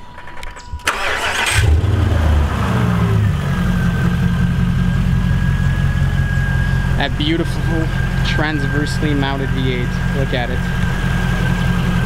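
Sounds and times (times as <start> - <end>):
car engine starting and idling: 0.0 - 12.0
thin steady whine: 3.2 - 12.0.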